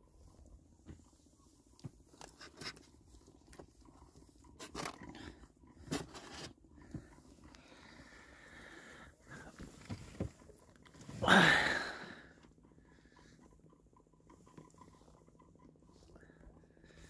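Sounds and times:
hand rustling and knocking in boat: 9.3s - 11.2s.

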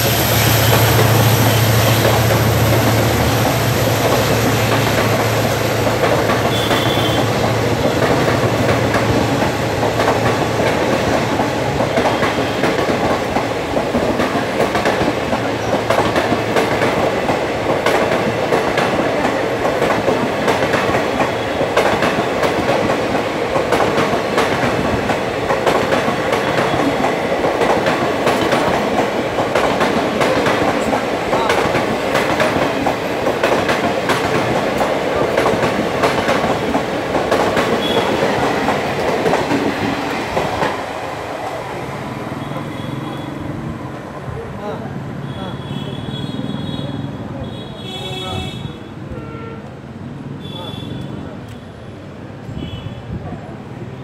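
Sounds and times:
train wheels clattering: 0.0s - 41.7s.

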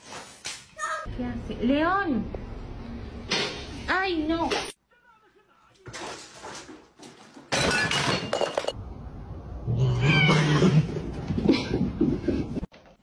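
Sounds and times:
clattering crash: 5.9s - 8.8s
cat yowling: 9.8s - 10.8s.

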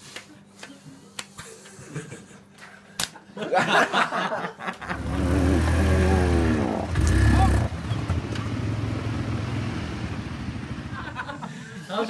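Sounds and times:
engine running low: 4.9s - 11.4s.

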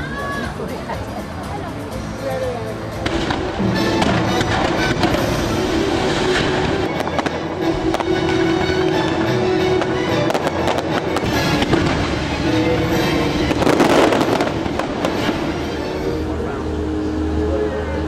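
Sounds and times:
show music with held notes: 0.0s - 18.0s
fireworks bursting: 3.0s - 16.4s.

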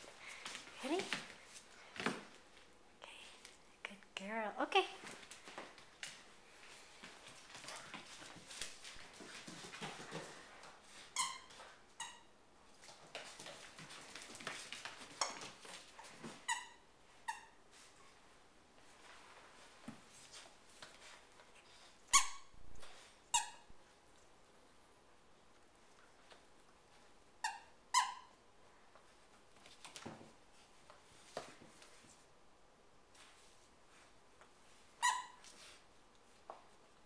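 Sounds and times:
squeaky toy squeaks: 22.1s - 22.5s, 35.0s - 35.4s.

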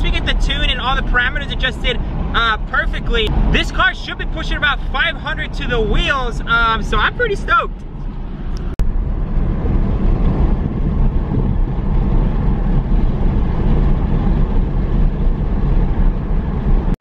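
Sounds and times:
car interior road noise: 0.0s - 17.0s.

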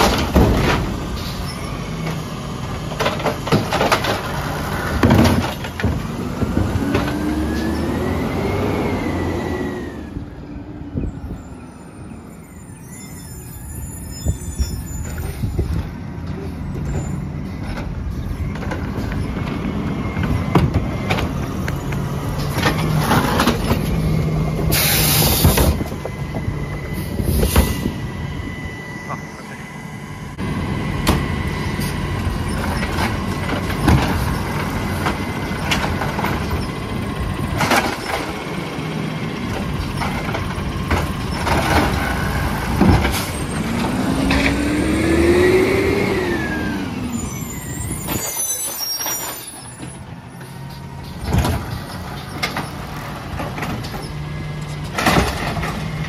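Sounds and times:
knocks and bangs of carts: 0.0s - 1.2s, 2.7s - 7.5s, 15.0s - 26.6s, 32.4s - 44.7s, 51.0s - 56.0s
air brake hiss: 24.7s - 25.7s, 27.2s - 28.0s.

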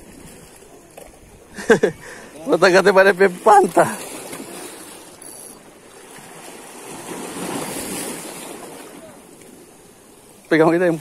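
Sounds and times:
waves washing against rocks: 2.2s - 11.0s.

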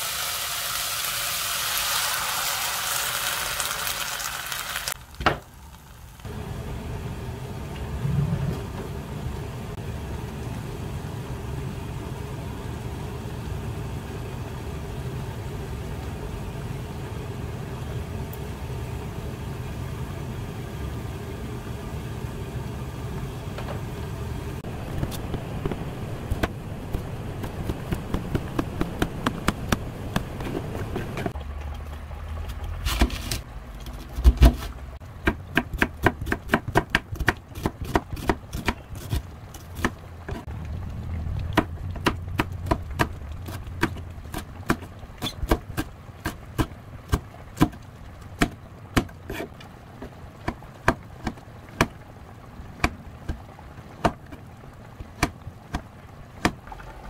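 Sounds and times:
soup simmering and bubbling: 0.0s - 23.3s, 24.0s - 32.8s, 38.2s - 57.0s
knife chopping on plastic board: 25.1s - 31.3s.

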